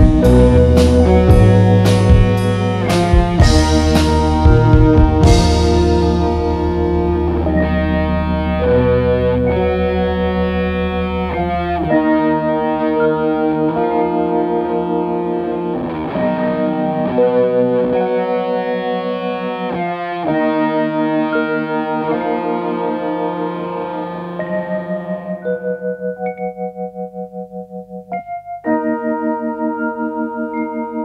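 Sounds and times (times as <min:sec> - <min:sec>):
guitar background music: 0:00.0 - 0:31.0.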